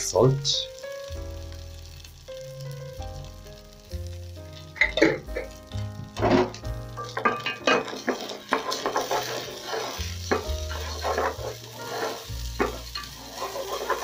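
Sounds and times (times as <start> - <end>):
oil sizzling: 0.0 - 14.0
spatula scraping a pot: 7.0 - 14.0.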